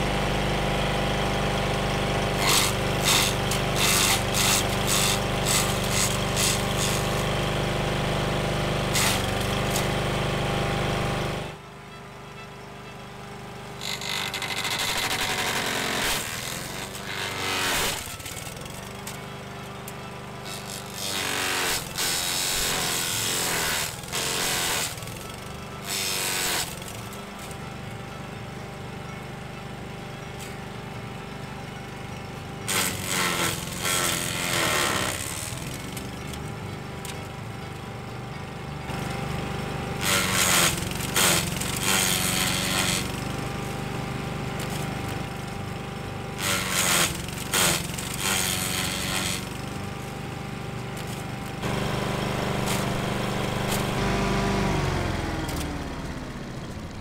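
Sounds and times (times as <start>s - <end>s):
blade shredding branches: 0.0s - 11.6s, 13.8s - 27.6s, 32.6s - 37.9s, 38.8s - 57.0s
push mower running: 0.0s - 57.0s.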